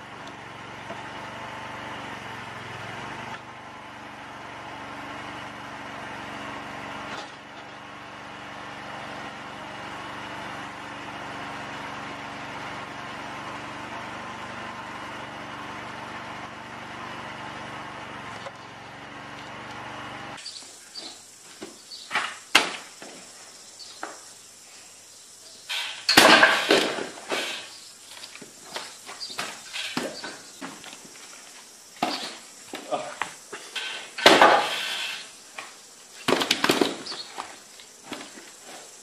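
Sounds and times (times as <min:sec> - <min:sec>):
small engine running: 0:00.0 - 0:21.1, 0:25.7 - 0:35.6.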